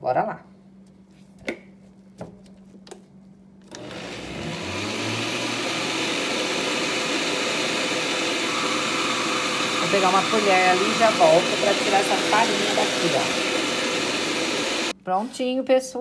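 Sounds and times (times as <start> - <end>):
blender motor churning batter: 3.7 - 14.9.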